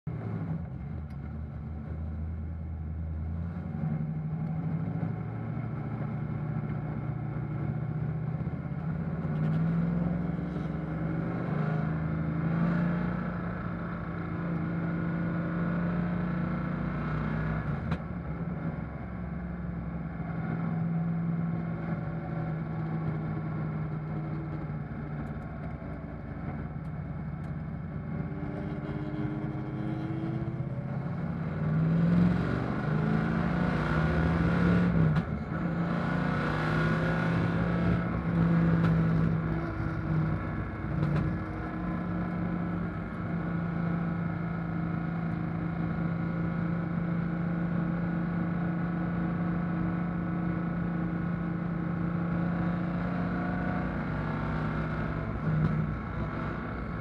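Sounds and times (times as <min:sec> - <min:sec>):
race car engine revving: 0:27.4 - 0:47.4.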